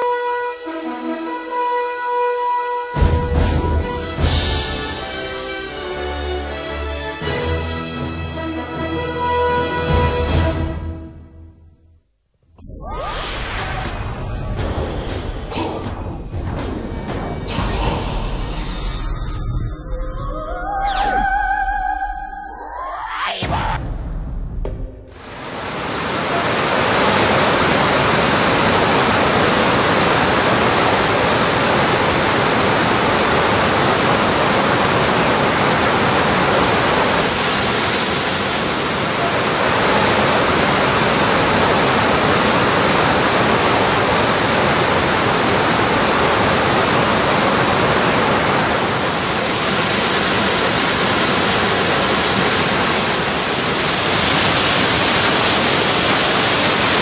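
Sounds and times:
waterfall rushing: 25.1 - 57.0.

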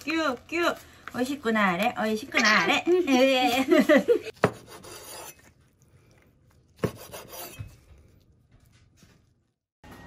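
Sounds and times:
bamboo mat rasping: 6.8 - 7.9.

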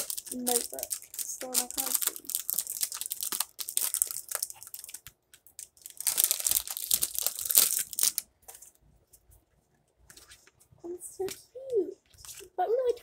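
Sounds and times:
paper and packaging crinkling: 0.0 - 8.8.

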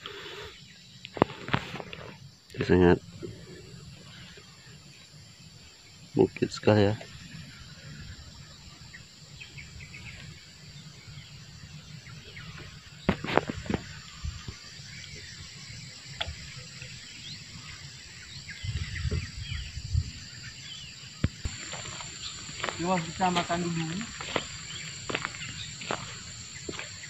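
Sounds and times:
insects chorus: 0.0 - 27.0
bird chirps: 17.1 - 27.0.

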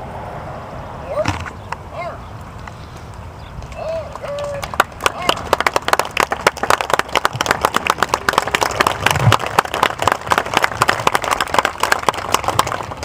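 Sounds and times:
crowd applauding: 3.8 - 13.0.

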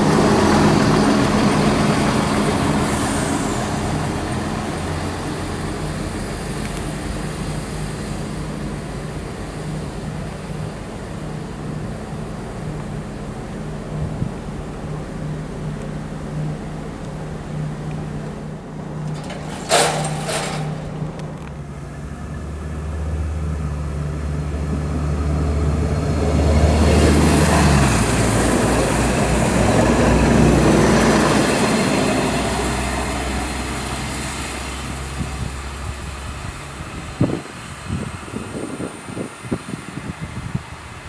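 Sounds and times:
diesel railcar passing: 0.0 - 41.0.

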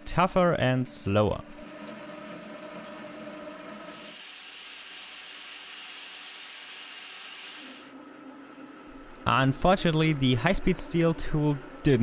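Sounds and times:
metal lathe humming: 1.5 - 12.0
lathe tool cutting steel hiss: 3.9 - 7.9.

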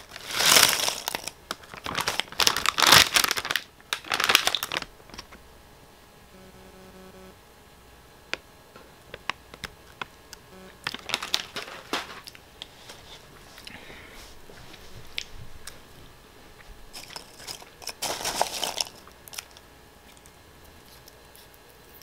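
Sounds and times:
crunchy snack sticks rustling: 0.0 - 5.4, 9.0 - 13.8, 16.9 - 22.0
foil snack bag crackling: 0.0 - 5.4, 10.8 - 12.4, 16.9 - 19.6.

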